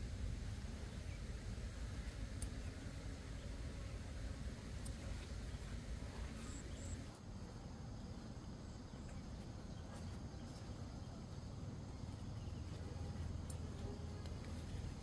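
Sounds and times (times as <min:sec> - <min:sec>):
faint insects buzzing: 0:00.0 - 0:15.0
small clicks and leaf rustles: 0:02.0 - 0:03.0, 0:04.4 - 0:07.2, 0:08.9 - 0:15.0.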